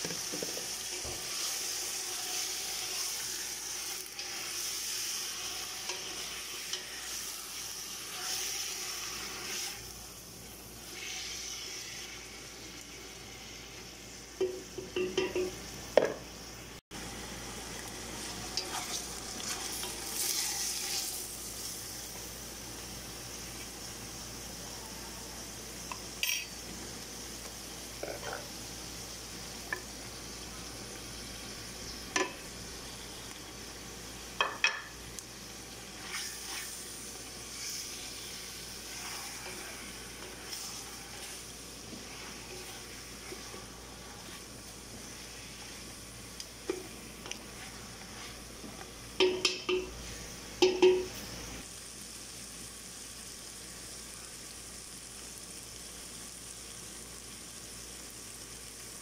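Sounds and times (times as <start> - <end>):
chicken sizzling in oil: 0.0 - 59.0
spoon knocking against pot: 14.4 - 16.2, 49.2 - 49.9, 50.6 - 51.1.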